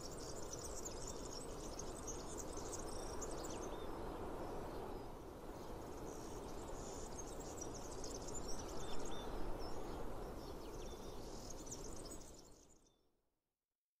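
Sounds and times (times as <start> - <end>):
small birds chirping: 0.0 - 13.0
low background hiss: 0.0 - 13.4.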